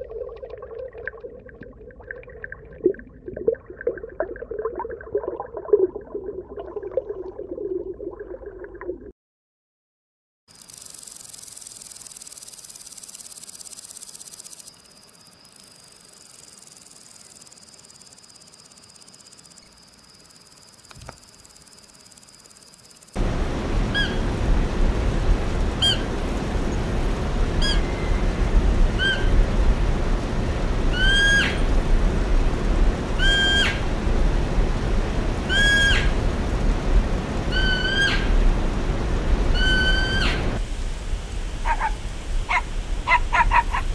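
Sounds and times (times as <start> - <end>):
grasshopper buzzing: 10.5 - 23.2
low steady rumble: 23.2 - 33.2, 33.8 - 43.0.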